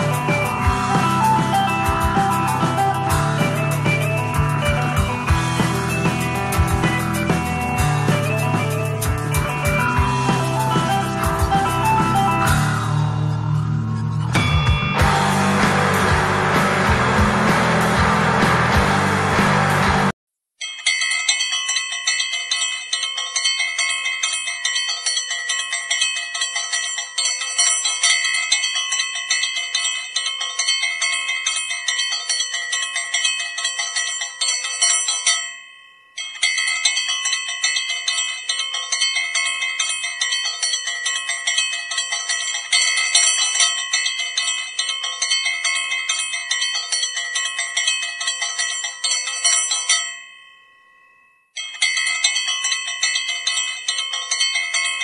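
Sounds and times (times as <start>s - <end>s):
brass hand bell rung rapidly: 0.0s - 12.6s, 14.4s - 20.0s.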